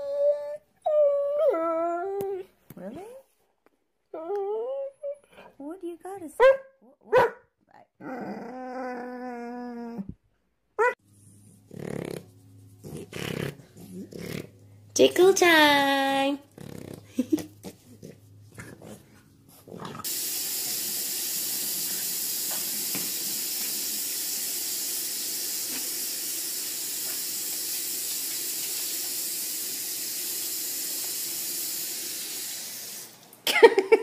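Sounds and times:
faucet water running: 0:19.9 - 0:33.9.

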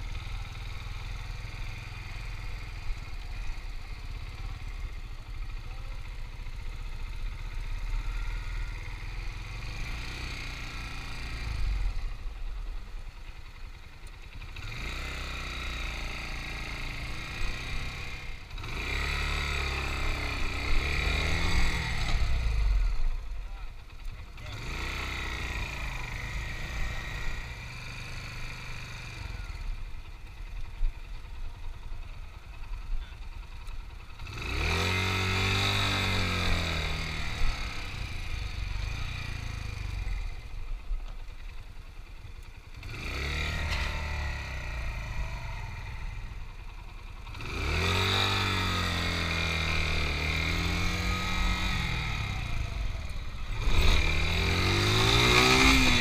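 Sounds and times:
motorcycle engine revving: 0:00.0 - 0:56.0.

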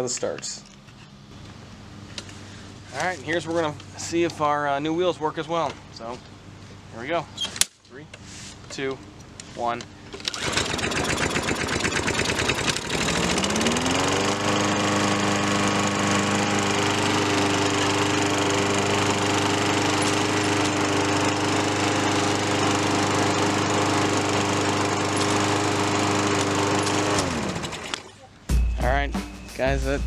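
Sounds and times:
push mower engine running: 0:10.0 - 0:28.2.

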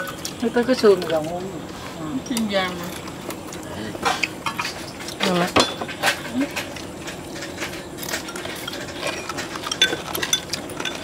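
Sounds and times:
chopsticks clinking on ceramic bowls: 0:02.2 - 0:11.0.

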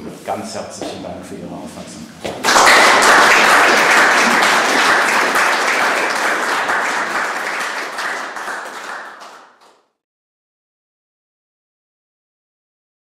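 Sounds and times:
audience applauding: 0:02.4 - 0:09.8.

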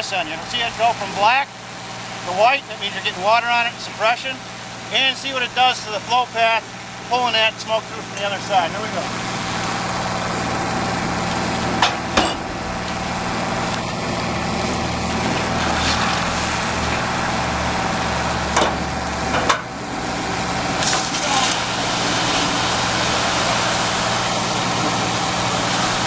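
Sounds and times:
engine hum: 0:00.0 - 0:26.0
water rushing through nozzle: 0:08.5 - 0:26.0
sharp knocks: 0:11.8 - 0:14.2, 0:18.6 - 0:19.7.

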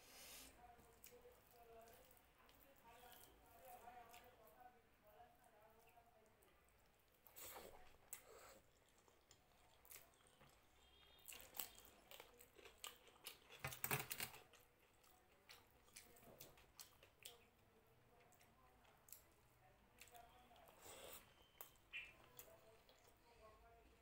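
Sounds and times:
chewing with wet mouth clicks: 0:06.4 - 0:23.2.

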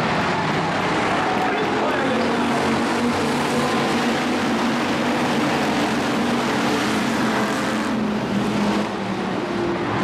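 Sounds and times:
stock car engines racing past: 0:00.0 - 0:10.0.

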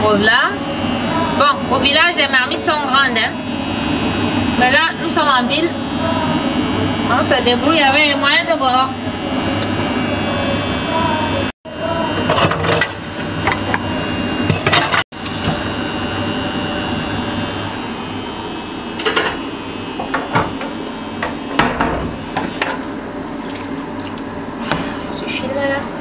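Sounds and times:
steady background hum: 0:00.0 - 0:26.0
dishes and utensils clattering: 0:12.3 - 0:13.8, 0:14.5 - 0:15.0.

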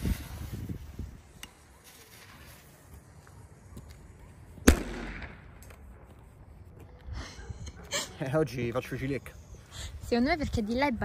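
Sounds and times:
firecracker bang: 0:04.6 - 0:05.5.

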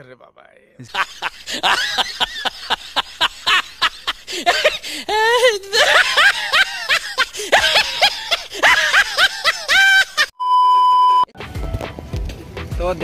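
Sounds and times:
high-pitched giggling laughter: 0:00.9 - 0:10.3
electronic beep: 0:10.4 - 0:11.3.

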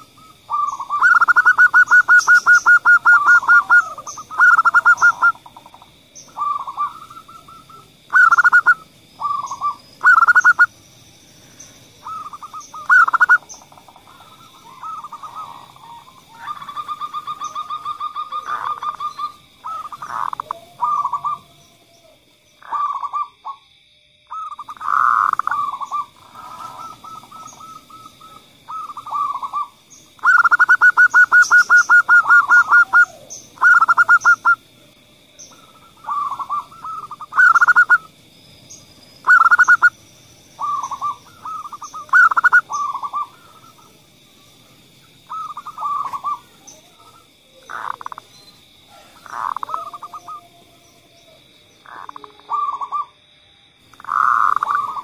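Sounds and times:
dove cooing: 0:00.0 - 0:10.7, 0:12.0 - 0:23.6, 0:24.3 - 0:34.7, 0:35.4 - 0:38.1, 0:39.2 - 0:40.0, 0:40.6 - 0:44.0, 0:45.2 - 0:53.2, 0:54.0 - 0:55.0.

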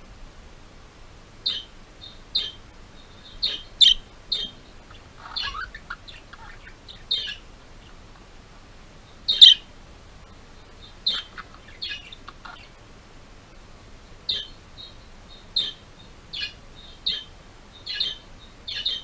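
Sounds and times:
budgerigars chirping: 0:01.4 - 0:08.3, 0:09.0 - 0:09.7, 0:10.6 - 0:12.8, 0:14.1 - 0:19.0
low budgerigar warble: 0:01.4 - 0:08.3, 0:09.1 - 0:09.7, 0:10.6 - 0:12.8, 0:14.2 - 0:19.0.

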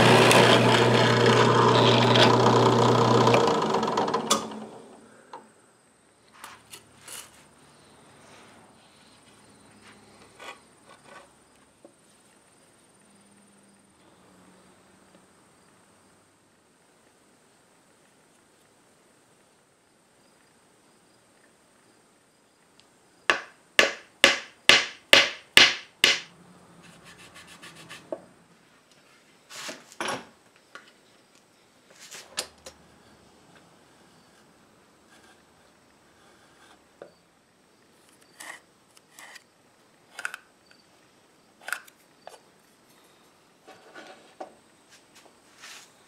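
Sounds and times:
saw cutting wood: 0:00.0 - 0:04.9, 0:26.1 - 0:28.2
fine scraping: 0:43.6 - 0:46.0.

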